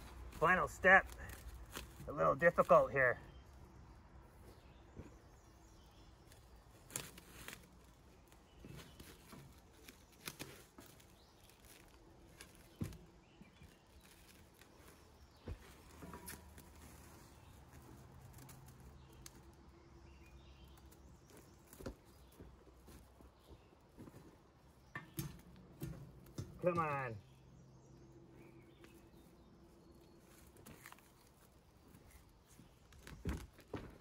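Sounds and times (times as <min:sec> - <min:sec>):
plastic film rustling: 0:00.0 - 0:02.6, 0:06.4 - 0:19.4
wire rack clicks and knocks: 0:24.9 - 0:27.0.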